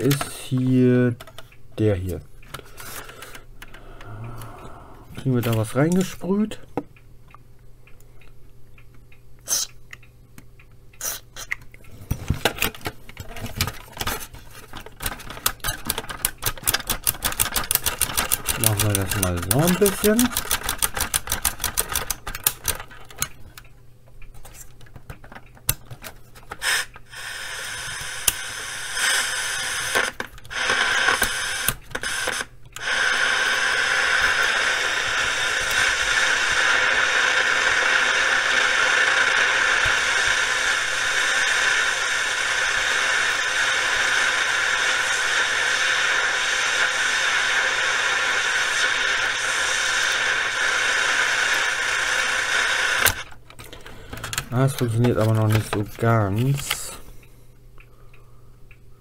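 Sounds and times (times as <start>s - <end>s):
radio crackling: 0.0s - 6.7s, 18.5s - 20.4s, 27.3s - 57.2s
radio static hiss: 0.0s - 6.7s, 18.5s - 20.4s, 26.6s - 53.4s, 54.4s - 57.2s.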